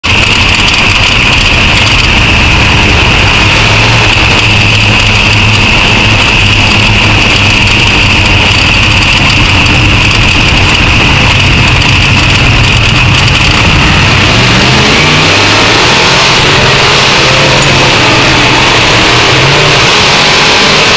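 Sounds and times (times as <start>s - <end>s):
race car engine running: 0.0s - 20.9s.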